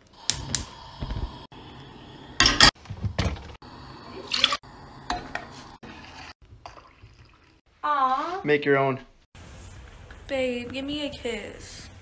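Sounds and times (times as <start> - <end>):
milk pouring into pot: 5.9 - 7.6.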